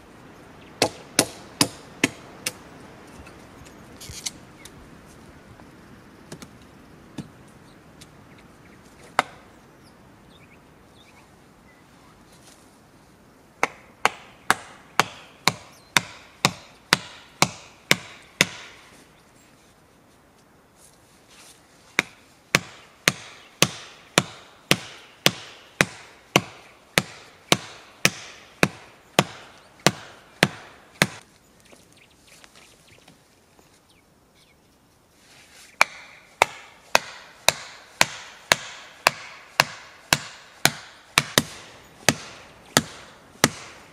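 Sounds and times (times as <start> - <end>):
hand tool striking wood: 0.8 - 2.6, 13.6 - 19.0, 22.0 - 31.2, 35.8 - 43.9.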